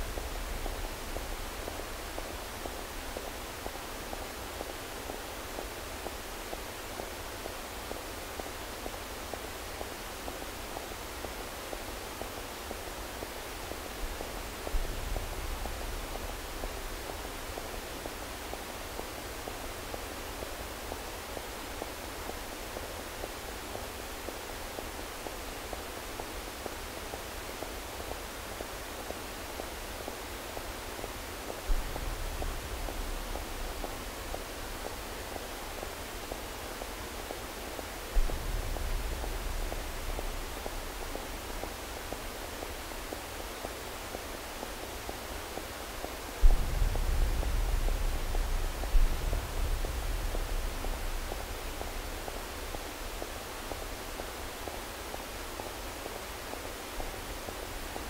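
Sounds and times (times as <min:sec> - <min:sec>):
hiss-like noise texture: 0:00.0 - 0:58.0
low rumble: 0:46.4 - 0:53.2.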